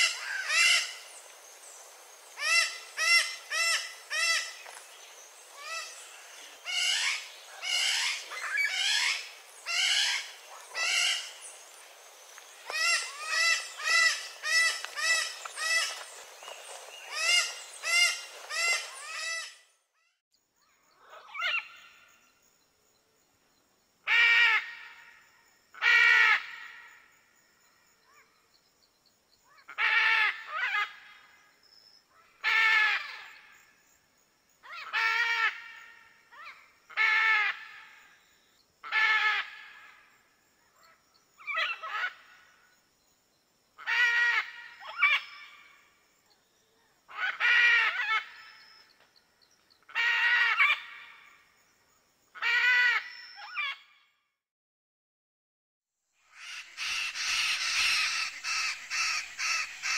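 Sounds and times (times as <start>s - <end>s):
background hiss: 0.0s - 19.5s, 20.4s - 50.0s, 56.2s - 59.9s
parrot squawking: 56.4s - 59.9s.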